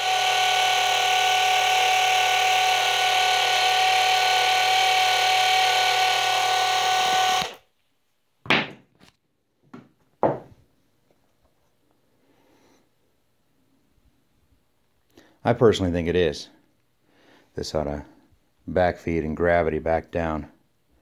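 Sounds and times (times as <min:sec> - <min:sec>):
electric gear pump whining: 0:00.0 - 0:07.6
sharp knocks: 0:08.5 - 0:08.9, 0:09.7 - 0:10.5.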